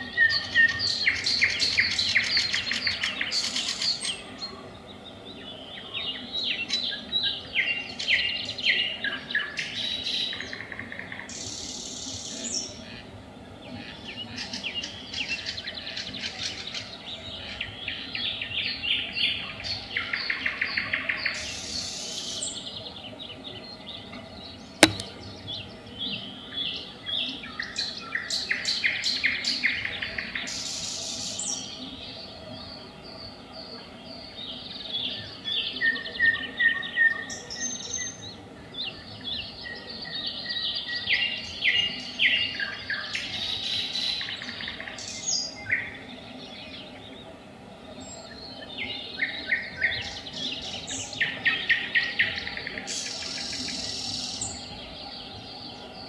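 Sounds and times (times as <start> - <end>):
sharp click: 24.8 - 25.7.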